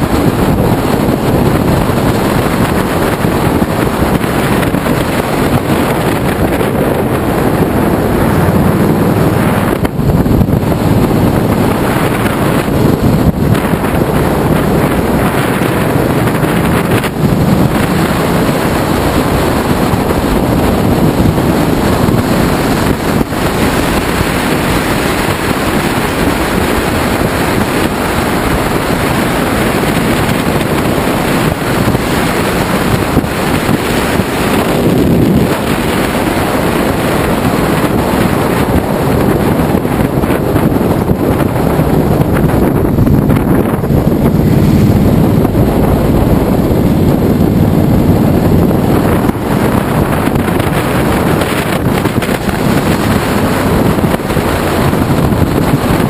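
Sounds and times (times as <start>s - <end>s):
motorcycle engine running: 0.0s - 56.0s
wind rushing over microphone: 0.0s - 56.0s.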